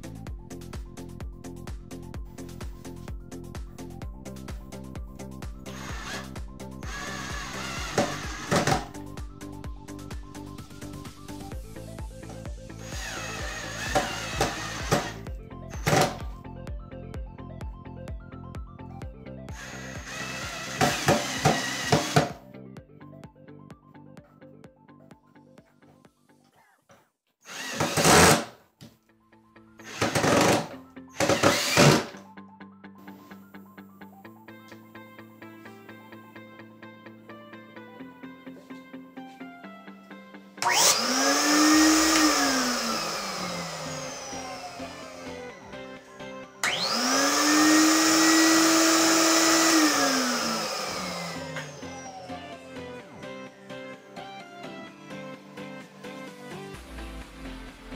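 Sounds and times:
blower motor running: 5.7 - 8.9, 12.8 - 15.2, 19.6 - 22.4, 29.8 - 32.1, 40.6 - 45.9, 46.6 - 52.8
light plucked background music: 27.8 - 57.9.

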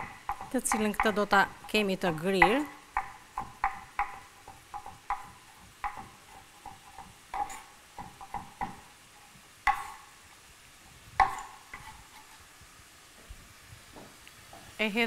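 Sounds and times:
utensil scraping cooking pot: 0.0 - 10.1, 11.2 - 12.5.

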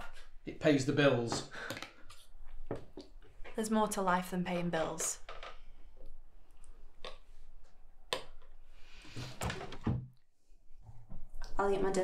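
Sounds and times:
chair scraping and knocking: 9.2 - 10.1.

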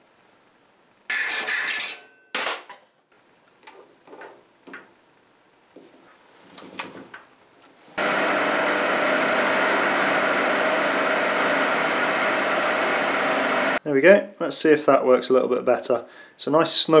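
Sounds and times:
metal lathe running: 8.0 - 13.8.

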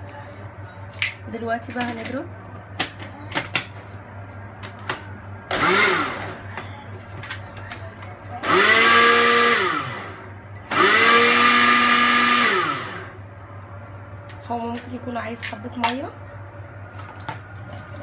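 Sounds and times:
blender chopping ice: 5.5 - 6.4, 8.4 - 13.1
blender motor whine: 5.5 - 6.4, 8.4 - 13.2.

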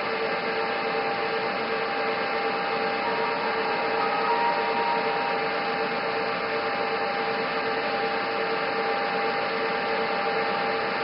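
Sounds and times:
two constant tones: 2.9 - 7.4.

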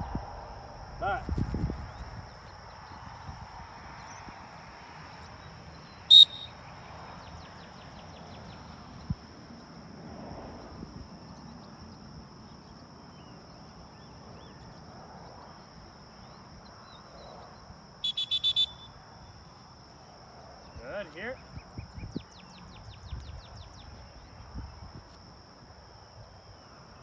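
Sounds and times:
high insect drone: 0.0 - 27.0
dog whistle blast: 6.1 - 6.5, 18.0 - 19.0
short whistle toots: 6.1 - 6.6, 18.0 - 19.0.

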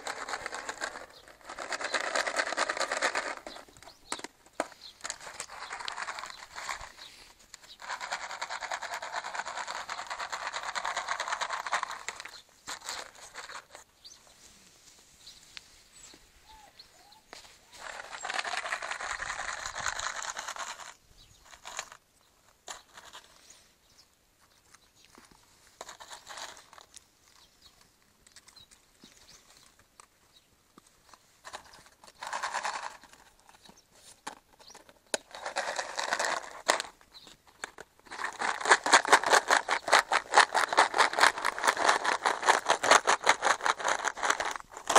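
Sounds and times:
rustling crinkling noise: 0.0 - 44.9
quiet rustles and ticks: 24.4 - 32.2.

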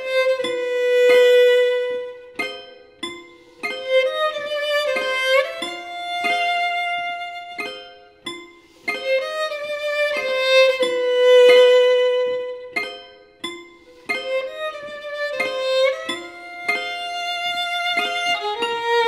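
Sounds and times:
solo violin melody: 0.0 - 2.6, 3.4 - 8.1, 8.7 - 13.1, 13.9 - 19.0
piano chords: 14.1 - 19.0.

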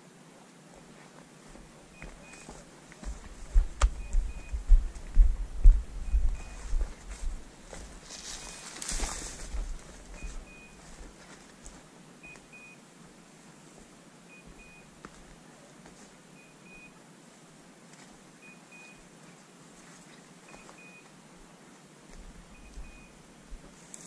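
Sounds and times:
faint high electronic beeps: 1.9 - 2.6, 3.4 - 5.0, 6.0 - 6.8, 8.2 - 9.2, 10.1 - 10.9, 12.2 - 12.8, 14.3 - 15.0, 16.3 - 17.0, 18.4 - 19.1, 20.4 - 21.1, 22.5 - 23.3.

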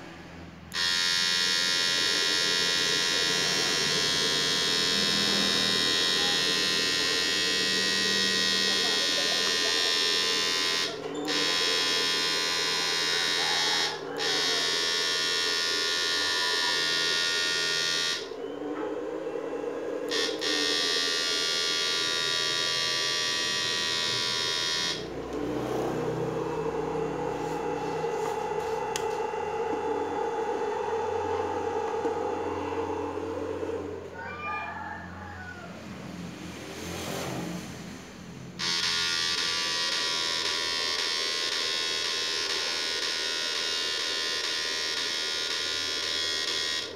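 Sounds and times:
inverter high-pitched electrical whine: 0.0 - 35.4, 36.0 - 46.9
low hum: 25.1 - 34.2.

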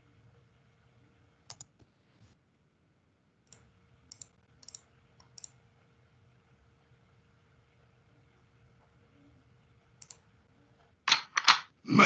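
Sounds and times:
faint steady hum: 0.0 - 12.0
faint computer clicks: 1.5 - 1.9, 3.4 - 5.6, 10.0 - 10.2.

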